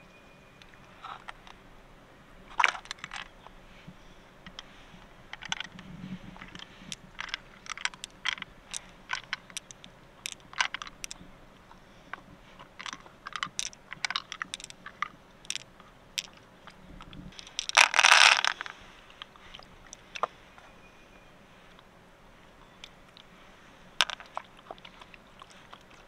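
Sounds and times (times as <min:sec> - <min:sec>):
pearls clicking: 0:02.5 - 0:03.6, 0:04.4 - 0:20.7, 0:22.6 - 0:26.0
pearls clattering into shell: 0:06.4 - 0:11.2, 0:12.8 - 0:16.4, 0:17.4 - 0:18.7.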